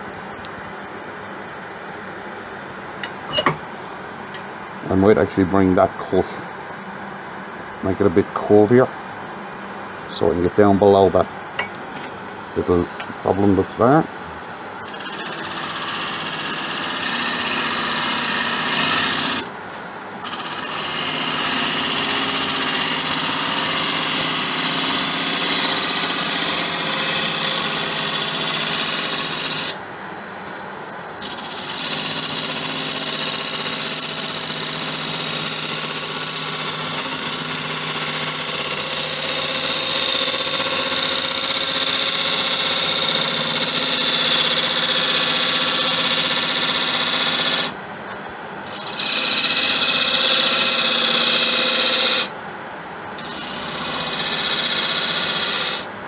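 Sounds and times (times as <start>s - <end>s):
lathe motor hum: 11.6s - 29.8s, 31.2s - 47.8s, 48.7s - 52.3s, 53.2s - 55.9s.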